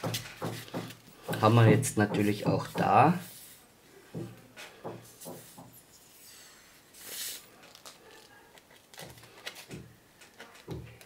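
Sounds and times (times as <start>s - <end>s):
plastic tube handling ticks: 7.6s - 11.0s.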